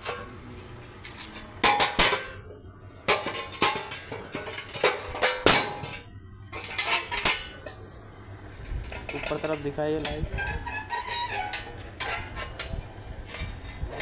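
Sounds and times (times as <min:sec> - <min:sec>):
steel parts clanking: 0:03.1 - 0:14.0.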